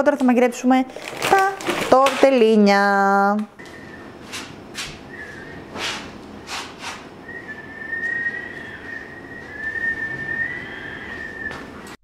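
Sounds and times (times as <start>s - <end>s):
high steady whistling tone: 3.6s - 4.2s, 5.0s - 5.8s, 7.2s - 12.0s
rug swishing on tile floor: 4.2s - 7.1s.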